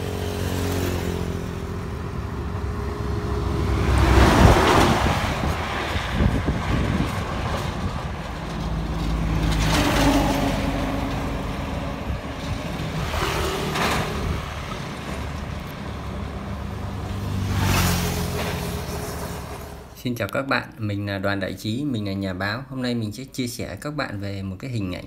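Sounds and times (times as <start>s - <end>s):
motorbike passing: 0.0s - 20.0s
trucks passing: 0.0s - 22.5s.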